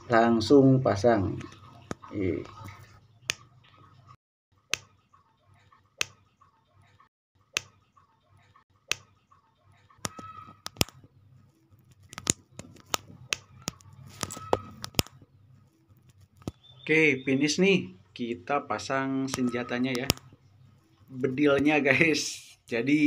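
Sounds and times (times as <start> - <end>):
plastic parts snapping together: 10.0 - 11.0.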